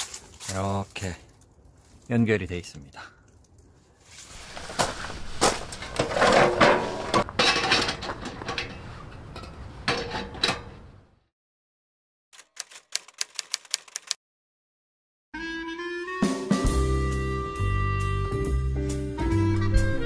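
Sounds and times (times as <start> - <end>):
metal clanks and rattles: 4.6 - 11.0
typewriter key clicks: 12.4 - 14.2.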